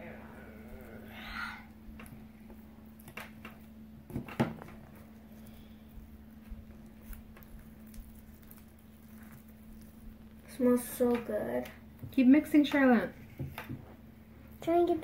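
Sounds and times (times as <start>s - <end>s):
faint steady hum: 0.0s - 15.0s
slime stirred in glass bowl: 4.8s - 11.2s.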